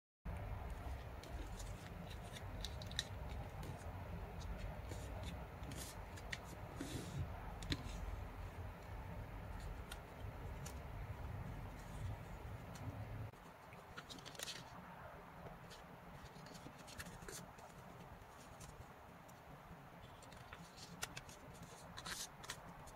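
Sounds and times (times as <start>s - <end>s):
paper rustling and crackling: 0.6s - 8.1s, 13.7s - 19.4s, 20.0s - 22.9s.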